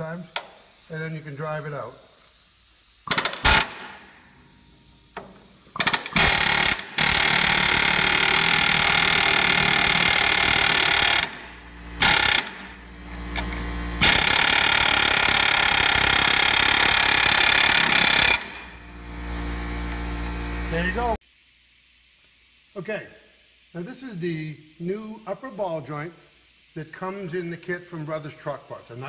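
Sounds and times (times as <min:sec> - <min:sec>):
pneumatic air hammer: 0:00.3 - 0:00.8, 0:02.2 - 0:20.9.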